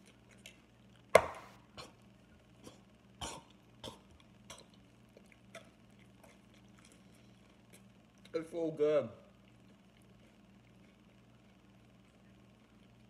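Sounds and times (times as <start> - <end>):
bowl knocking on stone countertop: 1.2 - 1.5.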